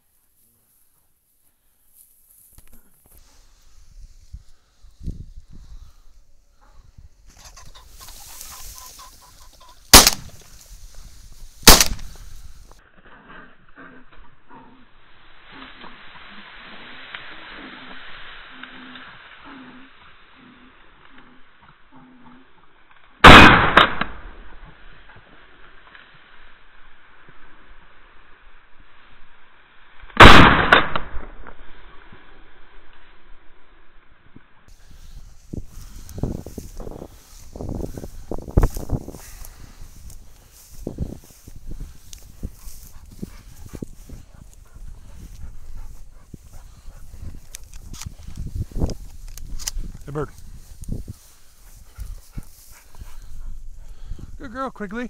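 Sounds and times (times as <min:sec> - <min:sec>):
wings flapping: 0:07.3 - 0:09.9
pheasant cackling: 0:07.3 - 0:10.2
shotgun firing: 0:09.9 - 0:10.4, 0:11.6 - 0:12.2, 0:23.2 - 0:24.4, 0:30.2 - 0:31.4.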